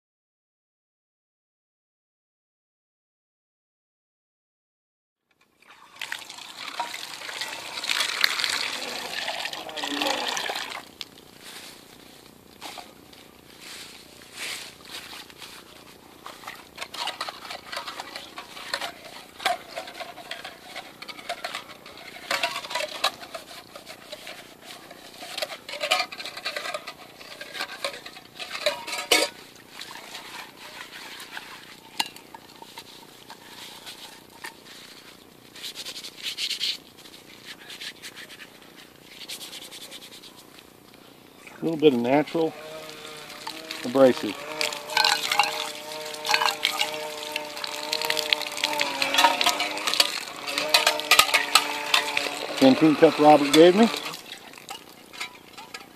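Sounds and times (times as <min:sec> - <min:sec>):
scouring metal pot with grit: 0:15.6 - 0:40.5, 0:41.6 - 0:55.9
plastic spork being rubbed: 0:30.1 - 0:31.8, 0:32.5 - 0:40.5
metal clinks: 0:44.9 - 0:47.1.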